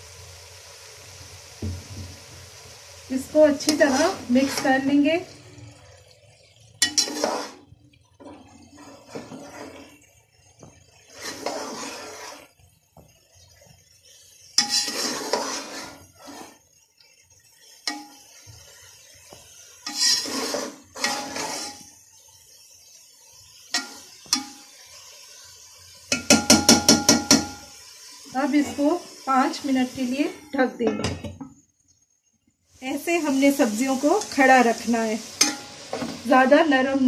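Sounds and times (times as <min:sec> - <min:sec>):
metal spoon scraping a pot: 0:03.6 - 0:04.9, 0:06.8 - 0:10.0, 0:11.0 - 0:12.5, 0:14.6 - 0:16.7, 0:19.8 - 0:21.9, 0:35.4 - 0:36.1.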